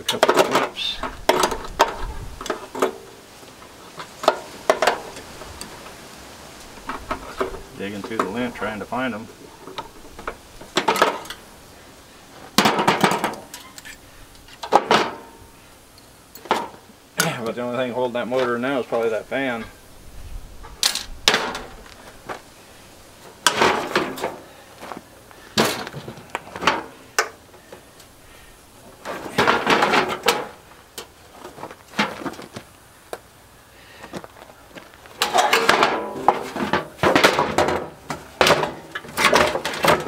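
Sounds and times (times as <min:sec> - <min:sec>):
metal panel clanking and scraping: 0:09.4 - 0:11.4, 0:12.6 - 0:14.0, 0:14.6 - 0:15.4, 0:23.2 - 0:24.5, 0:29.0 - 0:30.6, 0:35.2 - 0:40.0.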